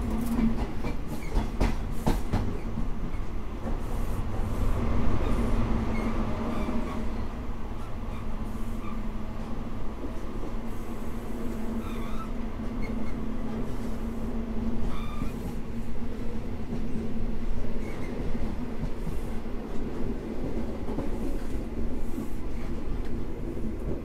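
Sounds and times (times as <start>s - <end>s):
train engine drone: 0.0s - 24.0s
faint wheel squeals: 11.8s - 13.2s, 14.8s - 15.6s.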